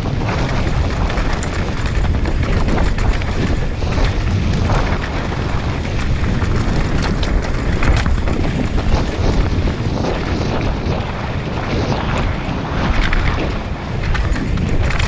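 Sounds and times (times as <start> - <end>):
wind buffeting microphone: 0.0 - 15.0
bike clattering: 0.5 - 9.0
tyres on rock and gravel: 0.5 - 9.0.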